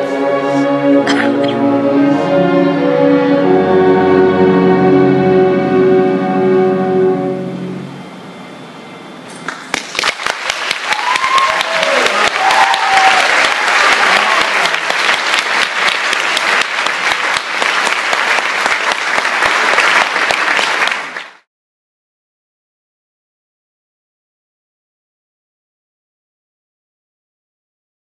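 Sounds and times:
orchestra chord: 0:00.0 - 0:09.4
audience applauding: 0:09.4 - 0:21.5.

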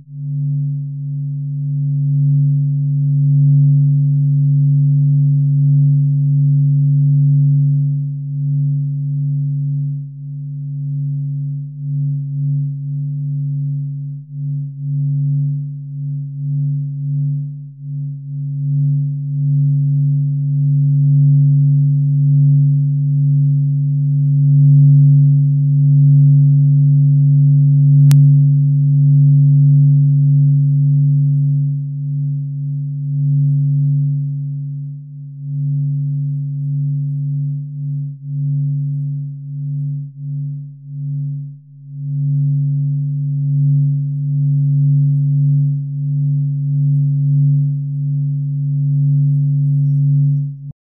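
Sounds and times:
low droning hum: 0:00.0 - 0:50.8.

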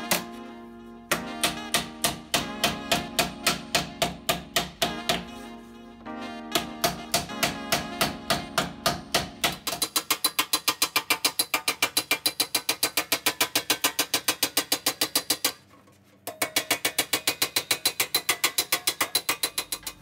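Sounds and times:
hammer blows on sheet metal: 0:01.1 - 0:05.4.

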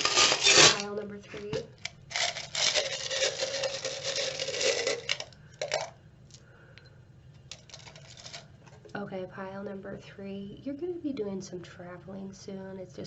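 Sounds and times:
metal charms rattling: 0:02.1 - 0:05.9.

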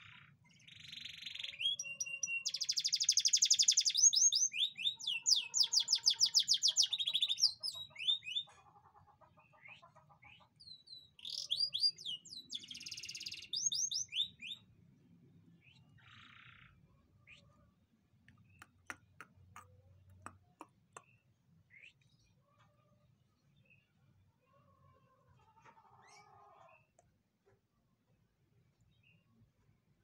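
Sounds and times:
canary singing trills: 0:00.0 - 0:14.7.

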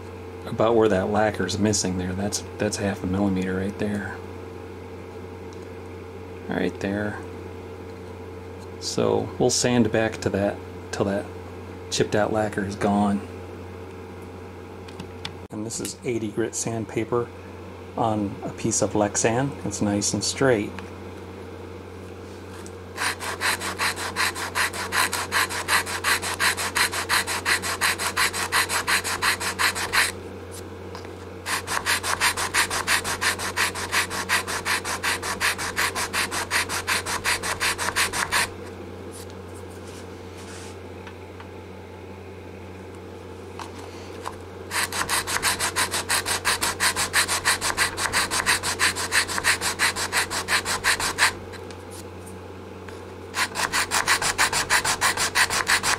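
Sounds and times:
sandpaper rasping on wood: 0:23.0 - 0:30.2, 0:31.5 - 0:38.5, 0:44.7 - 0:51.4, 0:53.4 - 0:55.9.

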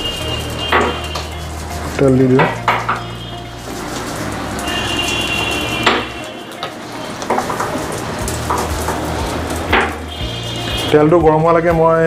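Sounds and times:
oil hissing in a wok: 0:00.0 - 0:11.1
sharp knocks: 0:09.7 - 0:10.0.

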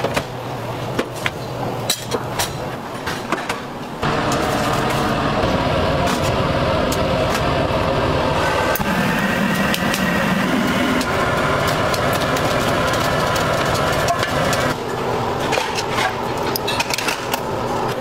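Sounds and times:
burner roaring: 0:04.0 - 0:15.6
charcoal crackling and popping: 0:08.8 - 0:14.8.

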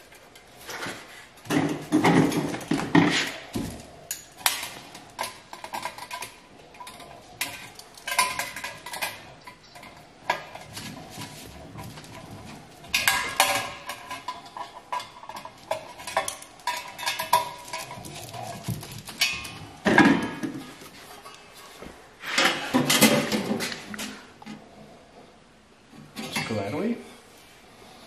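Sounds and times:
metal parts clinking and tapping: 0:04.0 - 0:10.8.

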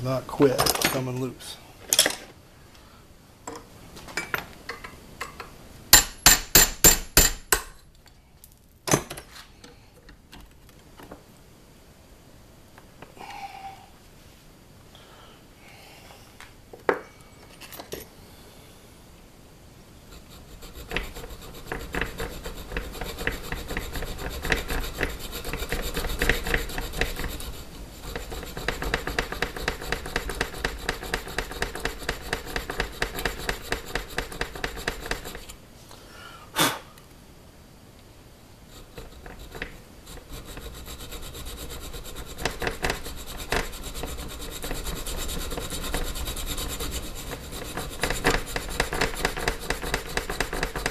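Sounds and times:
hand file rasping on steel: 0:20.2 - 0:35.5, 0:38.8 - 0:50.9.

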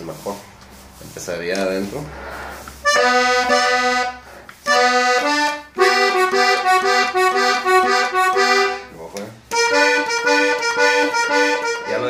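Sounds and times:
button accordion melody: 0:02.8 - 0:12.0.

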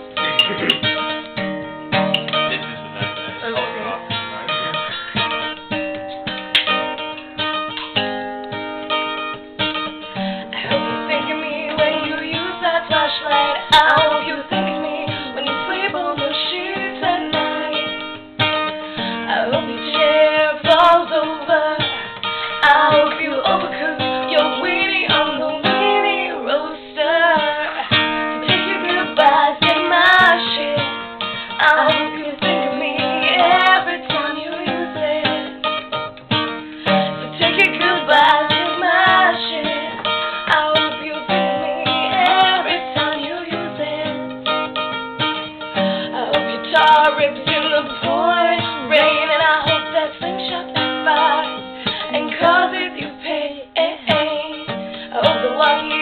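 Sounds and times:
acoustic guitar strumming: 0:00.0 - 0:56.0
woman singing: 0:10.6 - 0:36.0, 0:36.8 - 0:44.9, 0:45.8 - 0:56.0.

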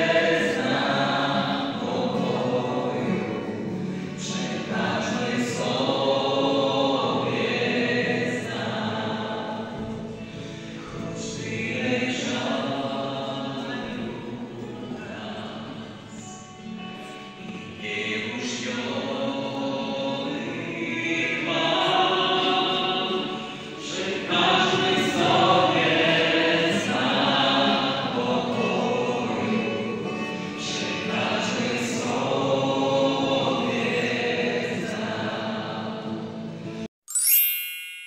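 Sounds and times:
man singing a carol: 0:00.0 - 0:09.8, 0:10.8 - 0:35.2
acoustic guitar: 0:00.0 - 0:36.9.

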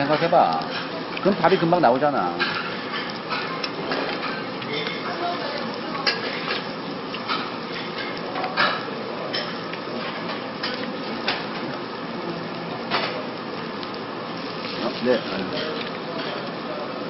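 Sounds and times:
utensils clinking on dishes: 0:00.0 - 0:05.2, 0:06.0 - 0:11.6, 0:15.2 - 0:16.6.

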